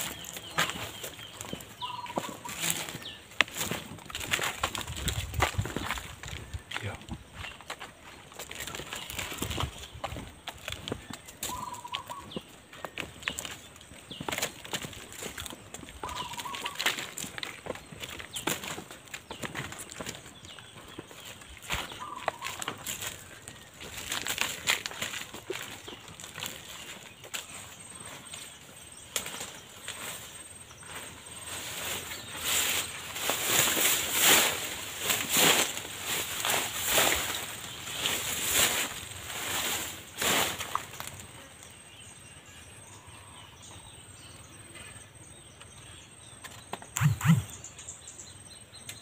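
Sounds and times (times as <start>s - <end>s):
footsteps crunching dry leaves: 0.0s - 41.7s
bird wavering call: 1.8s - 2.5s, 11.5s - 12.3s, 16.0s - 16.8s, 47.0s - 47.6s.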